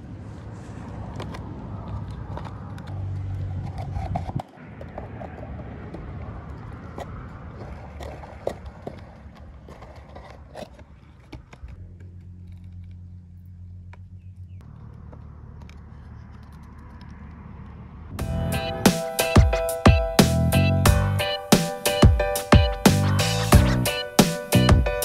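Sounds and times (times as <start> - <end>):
low hum: 0.0 - 18.9
low rumble: 1.5 - 9.7, 11.6 - 18.8.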